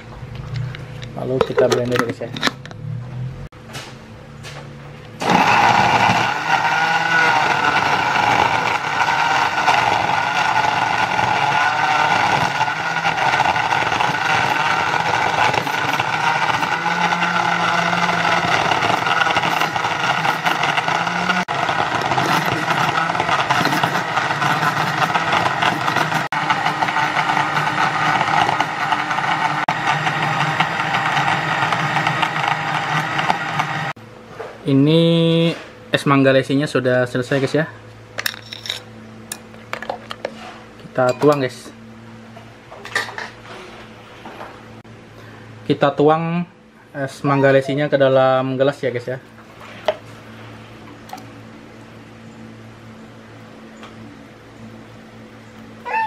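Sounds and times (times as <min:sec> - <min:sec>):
blender running: 0:05.2 - 0:34.0.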